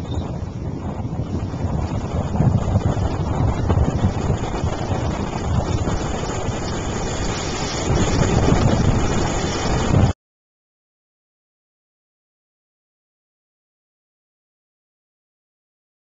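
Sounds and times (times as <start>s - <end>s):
surf washing onto beach: 0.0s - 10.2s
wind buffeting microphone: 0.0s - 10.2s.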